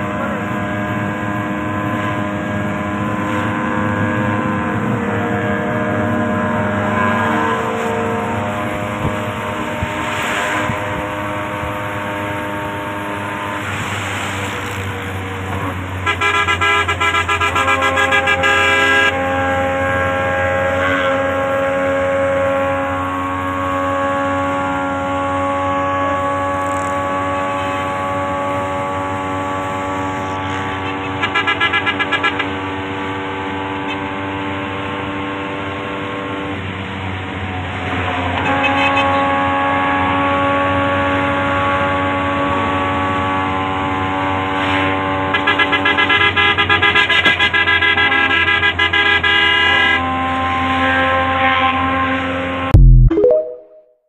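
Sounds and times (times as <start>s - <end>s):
vehicle horns long tones: 0.1s - 13.6s, 15.6s - 34.2s, 38.2s - 52.7s
rapid pulsing horn blasts: 15.9s - 32.7s, 45.3s - 50.4s.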